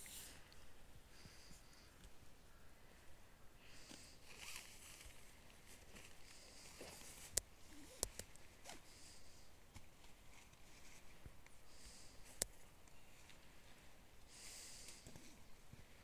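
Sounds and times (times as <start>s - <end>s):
tent fabric rustling: 4.2s - 7.9s.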